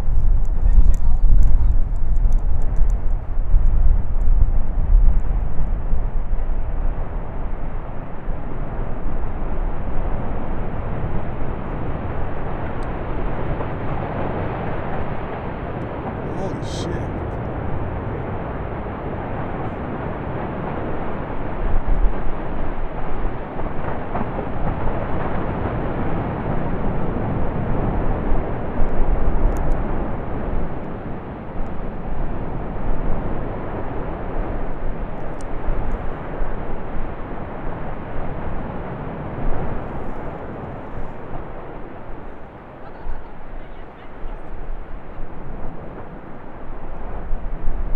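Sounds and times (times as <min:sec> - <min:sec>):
lava fountain rushing rumble: 0:00.0 - 0:47.9
faint clicks: 0:00.4 - 0:04.3.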